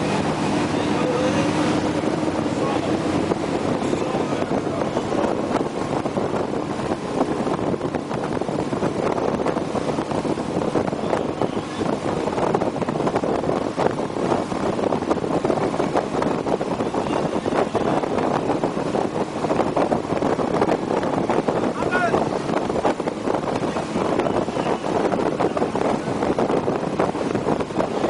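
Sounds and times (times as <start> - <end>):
motorboat engine and wake: 0.0 - 28.0
wind buffeting microphone: 0.0 - 28.0.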